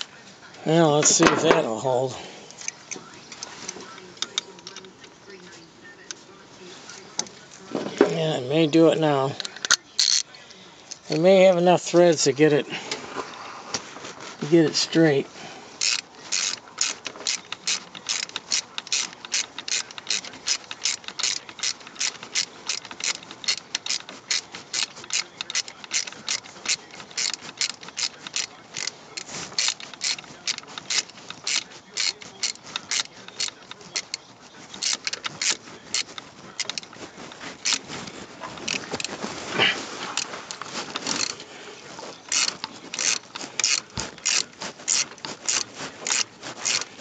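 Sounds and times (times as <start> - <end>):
ratchet wrench clicking: 9.4 - 10.3, 15.8 - 38.0, 38.6 - 39.2, 40.1 - 41.4, 42.0 - 46.9.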